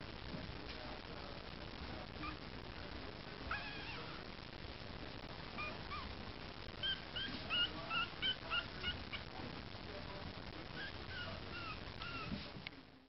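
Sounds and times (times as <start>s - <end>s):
puppy whimpering: 3.5s - 4.2s, 5.6s - 6.2s, 6.8s - 9.2s, 10.8s - 12.4s.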